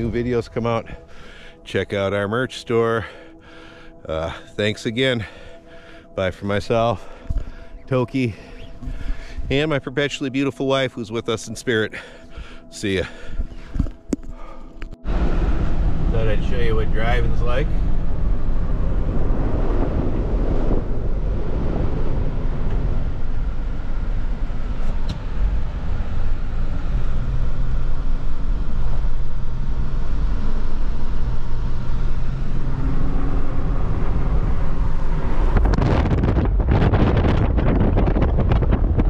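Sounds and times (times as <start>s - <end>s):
rough rushing noise: 15.0s - 26.1s, 28.6s - 39.0s
car engine running: 15.0s - 39.0s
tyre and road rumble: 17.2s - 39.0s.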